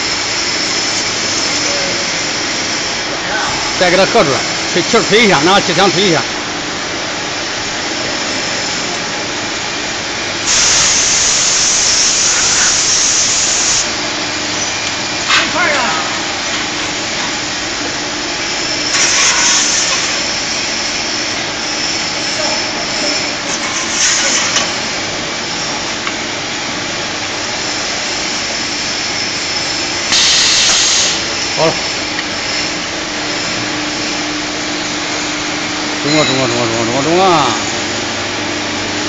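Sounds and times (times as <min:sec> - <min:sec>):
steady machine noise: 0:00.0 - 0:39.0
air blow gun hissing: 0:10.4 - 0:14.0, 0:18.9 - 0:21.0, 0:30.1 - 0:31.8.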